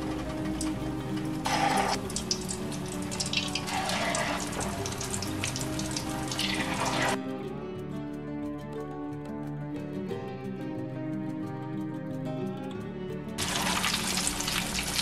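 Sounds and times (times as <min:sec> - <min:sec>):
oil sizzling: 0:00.0 - 0:07.2, 0:13.4 - 0:15.0.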